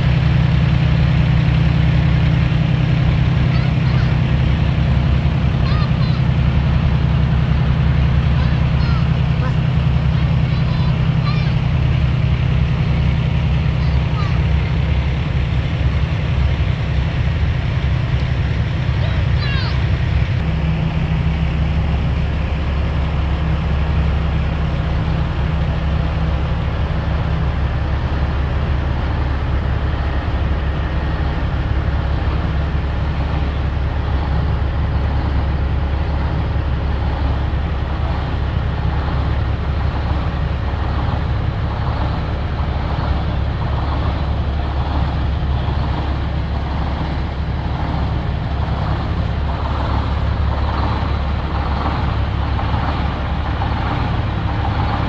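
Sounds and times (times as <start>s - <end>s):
diesel truck engine idling: 0.0s - 55.0s.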